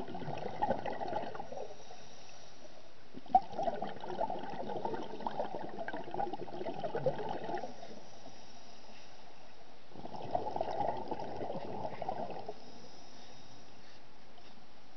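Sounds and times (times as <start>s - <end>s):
underwater bubbles gurgling: 0.0s - 2.1s, 3.1s - 8.1s, 9.9s - 12.9s.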